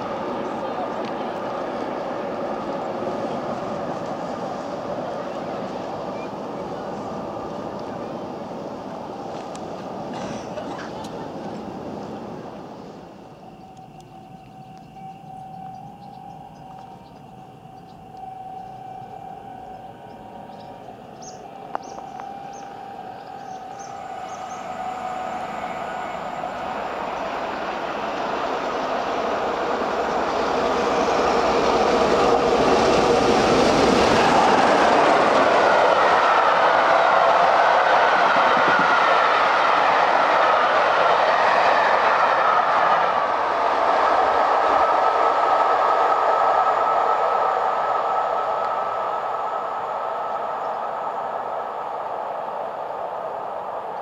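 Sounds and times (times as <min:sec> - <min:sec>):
passenger train passing at speed: 0:00.0 - 0:54.0
steam locomotive rumble: 0:00.0 - 0:54.0
steady tone: 0:12.7 - 0:54.0.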